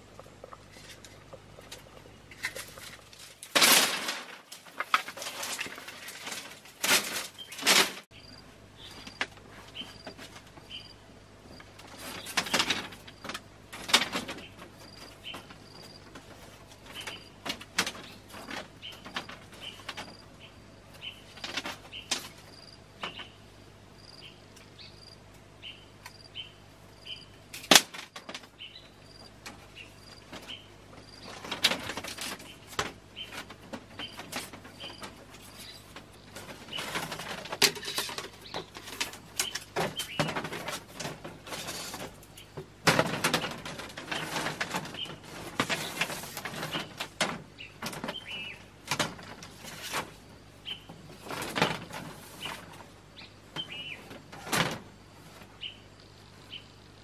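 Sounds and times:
bamboo strips clacking and scraping: 0.0 - 8.2, 8.8 - 23.4, 27.4 - 55.7
bamboo cracking: 0.4 - 8.1
bird chirps: 19.6 - 27.4, 53.2 - 54.1, 55.6 - 56.9.

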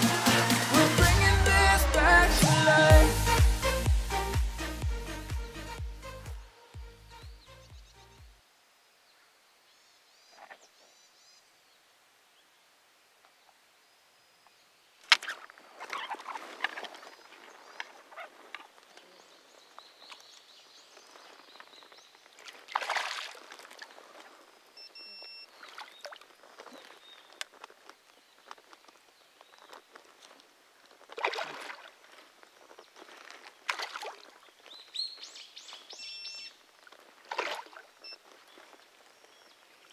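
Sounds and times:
fish splashing in water: 22.3 - 24.6, 31.1 - 32.2, 33.0 - 34.5, 36.9 - 39.0
faint bird chirps: 23.9 - 27.5, 34.4 - 36.6.

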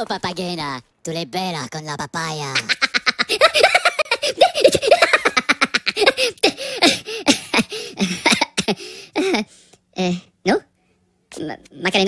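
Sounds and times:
cartoon voices giggling: 2.5 - 9.4.

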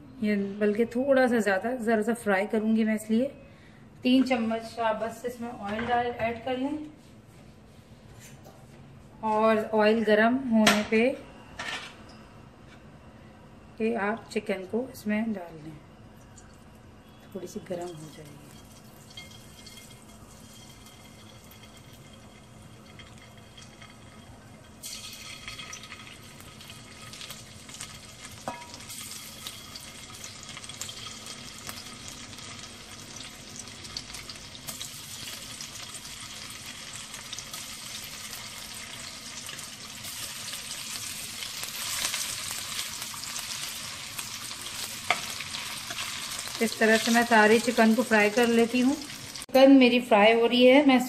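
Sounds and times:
chicken sizzling in hot oil: 17.3 - 49.5.

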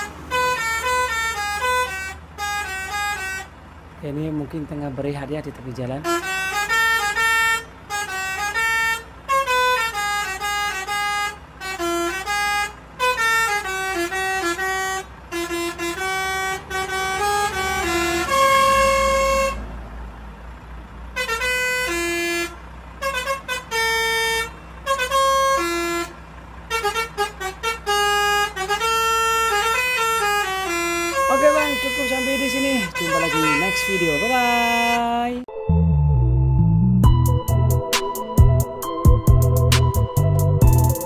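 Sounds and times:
multi-tone air horn playing tune: 0.0 - 3.5, 6.0 - 19.7, 21.2 - 35.4.

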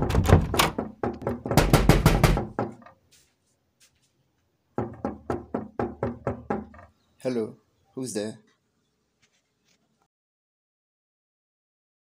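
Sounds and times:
rapid knocking on a door: 0.0 - 2.8, 4.8 - 6.8.

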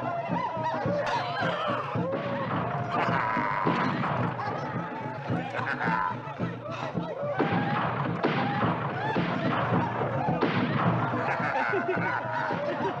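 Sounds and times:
men laughing and snickering: 0.0 - 7.8, 8.9 - 13.0.

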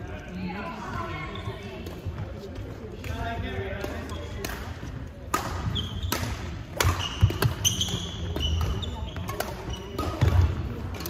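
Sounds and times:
racket striking shuttlecock: 5.3 - 11.0
shoes squeaking on wooden floor: 7.0 - 10.0.

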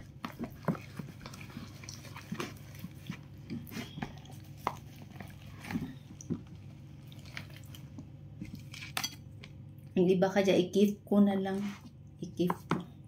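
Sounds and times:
wet squelching: 0.0 - 9.0
low steady hum: 0.0 - 13.0.

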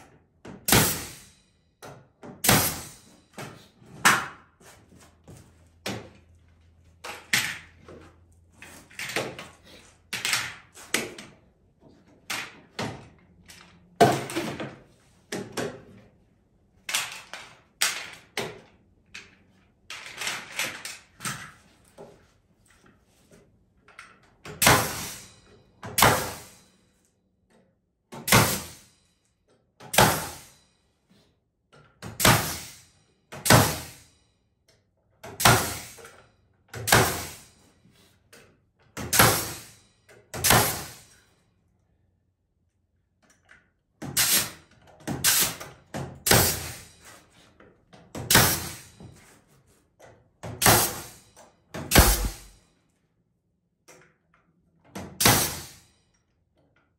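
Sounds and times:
nail gun firing: 0.6 - 1.3, 2.4 - 3.0, 24.5 - 25.2, 25.8 - 26.6, 28.2 - 28.9, 29.8 - 30.5, 32.0 - 34.0, 35.2 - 36.1, 36.7 - 37.5, 39.0 - 39.7, 40.3 - 41.1, 44.0 - 46.9, 48.2 - 48.9, 50.5 - 51.2, 51.8 - 52.6, 55.0 - 55.8.

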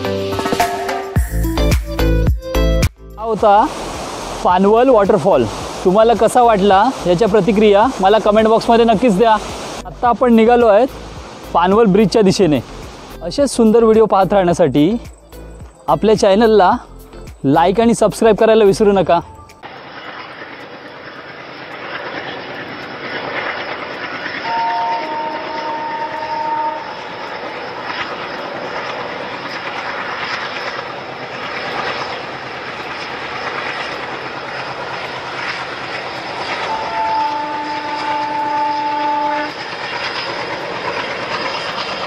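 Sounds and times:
train wheels rumbling on rail: 3.3 - 16.8, 17.6 - 42.0
train horn blasts: 24.4 - 27.4, 36.5 - 39.8.

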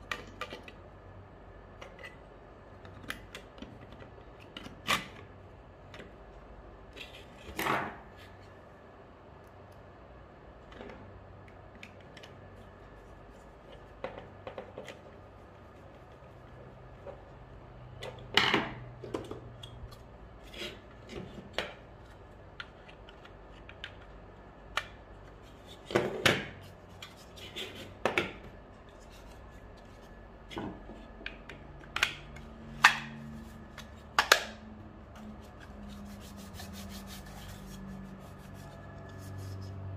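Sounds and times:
wet wipe rubbing plastic: 35.2 - 39.9.

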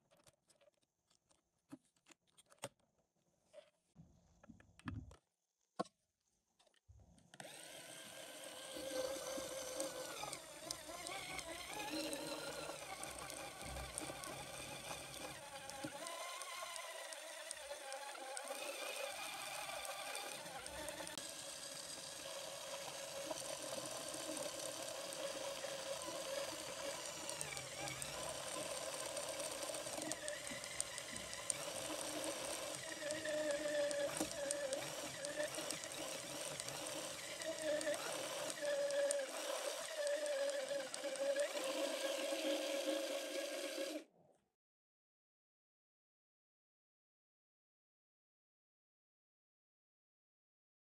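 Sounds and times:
plastic gears turning: 7.3 - 44.1
electric motor whine: 7.4 - 44.0.

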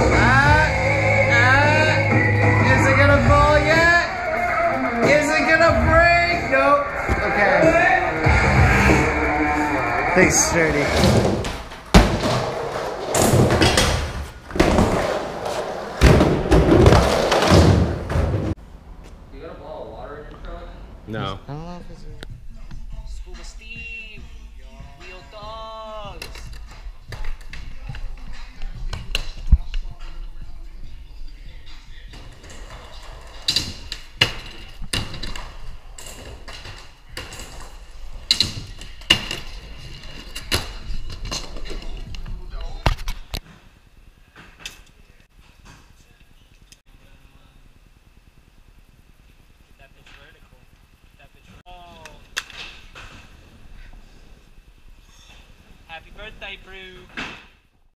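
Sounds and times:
skateboard wheels rumbling: 6.8 - 18.6
skateboard thudding on ramp: 11.1 - 18.5.

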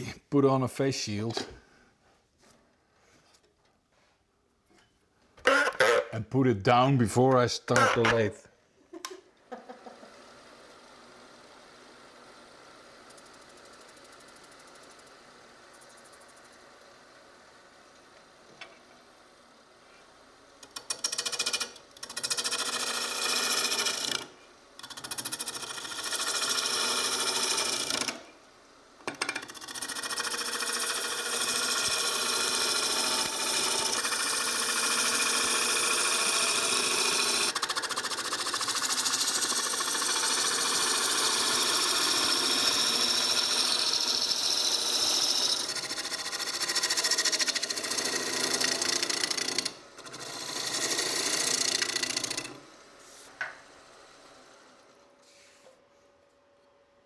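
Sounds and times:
gouge cutting wood on a lathe: 20.8 - 28.3, 29.2 - 54.8.

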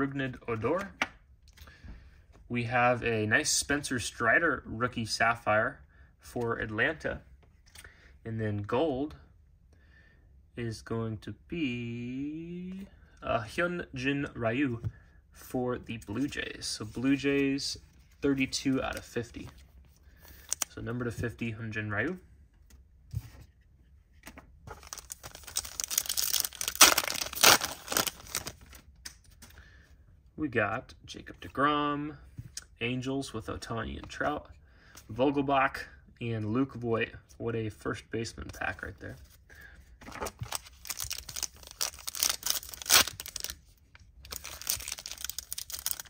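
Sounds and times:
foil wrapper tearing and crinkling: 24.8 - 28.6, 40.4 - 43.6, 44.3 - 46.0.

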